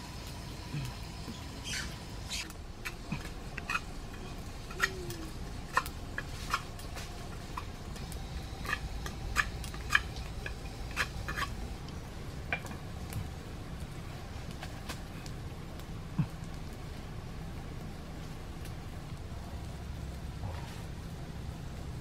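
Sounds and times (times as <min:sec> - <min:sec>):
low steady rush: 0:00.0 - 0:22.0
wood fire crackling: 0:00.0 - 0:22.0.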